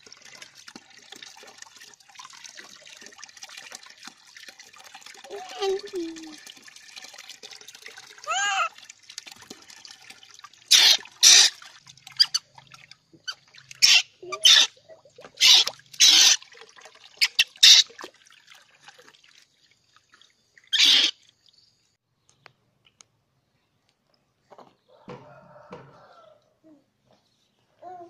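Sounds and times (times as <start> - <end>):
water splashing in tub: 0.0 - 21.7.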